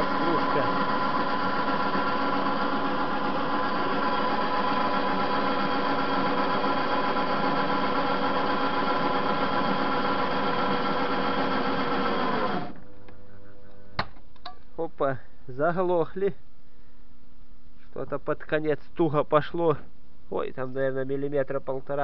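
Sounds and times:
lathe cutter cutting metal: 0.0 - 12.7
metal lathe motor humming: 0.0 - 12.8.

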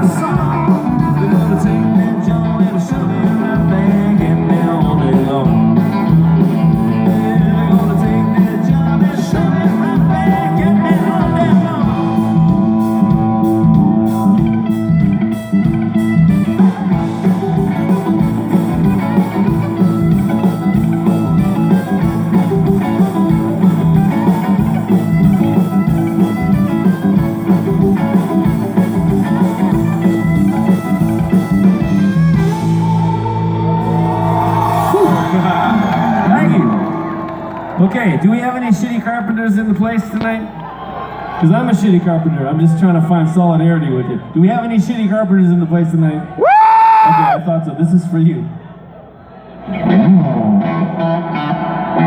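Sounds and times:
drum kit beat: 0.0 - 35.4
electric bass: 0.0 - 38.0, 49.6 - 52.0
electric guitar: 0.0 - 38.3, 49.6 - 52.0.

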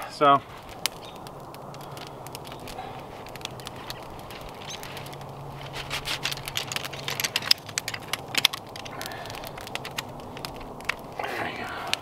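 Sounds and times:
crackling campfire: 0.0 - 12.0
metal chair poles clicking and rattling: 2.0 - 10.6.

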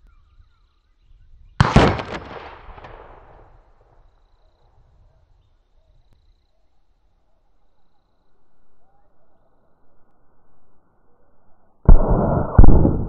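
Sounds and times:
air rifle shot crack: 1.6 - 3.5, 11.9 - 13.0
loud hard hit: 11.9 - 13.0.

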